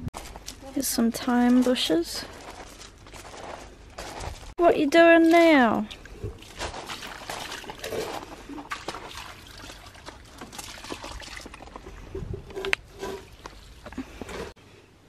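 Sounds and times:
water splashing into metal can: 6.4s - 13.8s.

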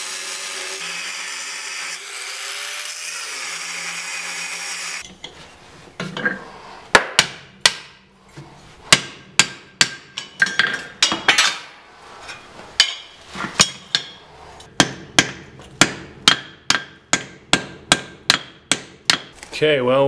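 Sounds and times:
hammer striking steel on anvil: 7.0s - 8.1s, 8.9s - 11.7s, 12.8s - 19.3s.

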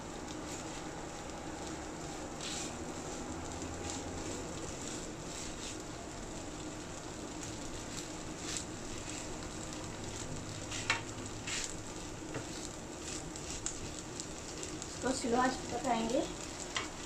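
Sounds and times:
food sizzling in a frying pan: 0.0s - 17.0s
spatula scraping a pan: 10.1s - 11.8s.

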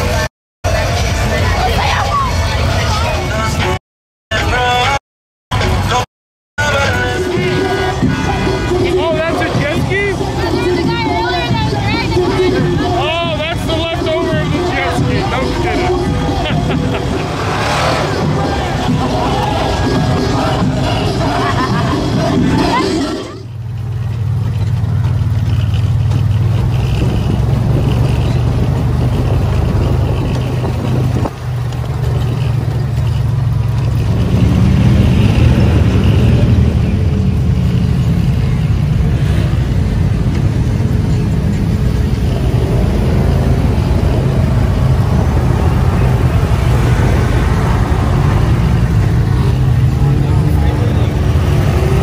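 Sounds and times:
wind: 0.0s - 6.0s, 6.6s - 52.0s
other truck engines: 0.0s - 52.0s
off-road vehicle engine running: 6.6s - 52.0s
rough-ground noise: 15.3s - 21.2s, 37.2s - 50.0s.

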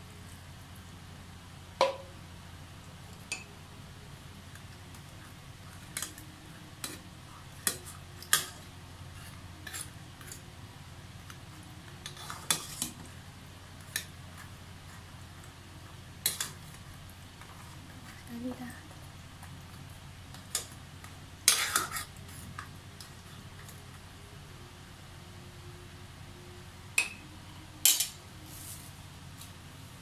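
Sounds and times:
ladle scraping and clinking in pot: 7.6s - 10.4s, 12.0s - 13.1s, 21.4s - 22.4s.

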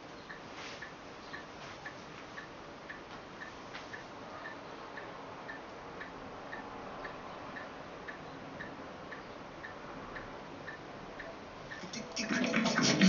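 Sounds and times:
regular ticking: 0.0s - 13.0s
radio speaker hiss: 11.8s - 13.0s.

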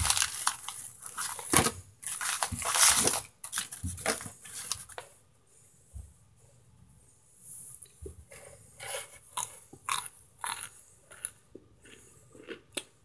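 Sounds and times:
cornstarch chunks crunching: 0.0s - 3.3s, 8.9s - 12.9s.

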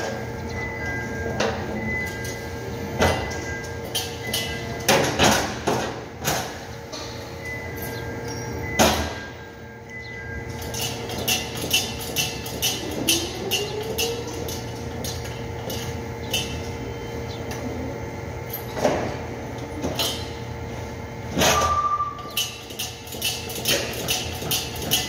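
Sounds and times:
machine hum: 0.0s - 25.0s
machine clatter: 10.4s - 16.8s, 21.3s - 25.0s
brief ringing tone: 21.6s - 22.4s.

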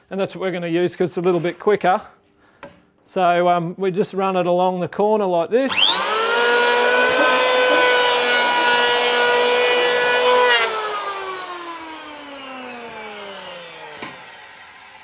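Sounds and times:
electric planer whining: 5.7s - 15.0s.

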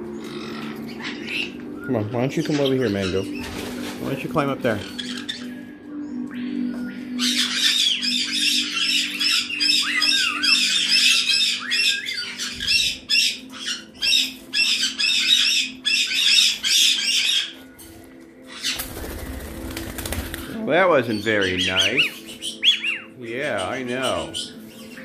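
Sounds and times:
parrots screeching: 0.2s - 1.6s, 4.7s - 5.6s, 7.2s - 17.6s, 18.4s - 19.2s, 21.1s - 24.6s
wings flapping and scuffling: 3.0s - 5.5s, 17.8s - 20.6s.

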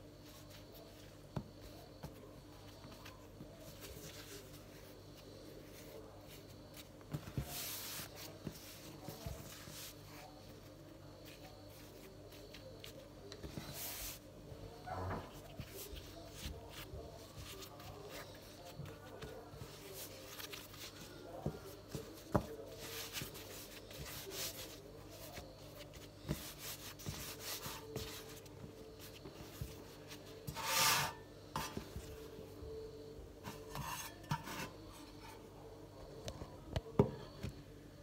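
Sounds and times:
hands rubbing and patting dough: 0.0s - 32.7s
scraping rub on countertop: 30.0s - 32.0s, 33.4s - 35.4s.

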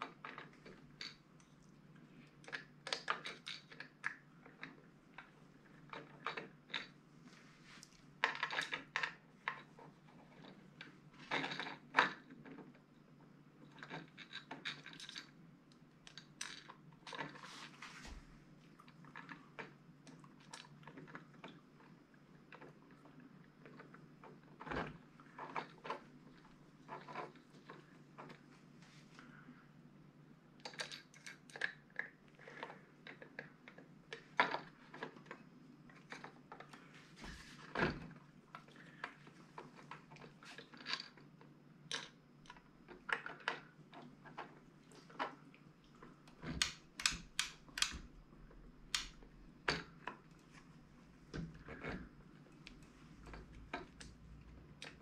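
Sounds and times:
clicks and taps of parts handled: 46.3s - 48.1s
sharp clicks: 46.6s - 48.0s.

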